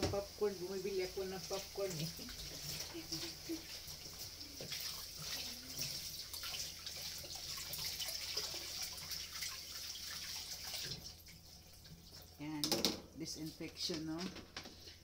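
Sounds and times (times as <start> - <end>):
tap water running into basin: 0.0 - 15.0.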